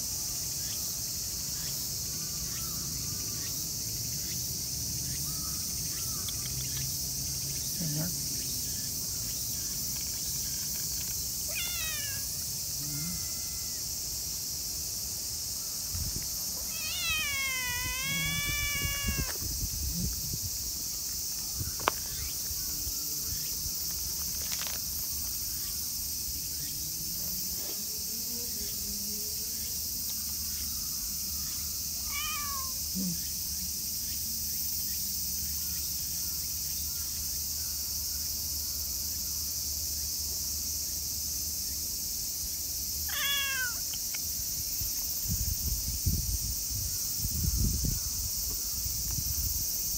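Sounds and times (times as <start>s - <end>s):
insects droning: 0.0s - 49.9s
cat meowing: 11.5s - 13.8s, 16.7s - 19.4s, 32.0s - 32.8s, 43.1s - 43.9s.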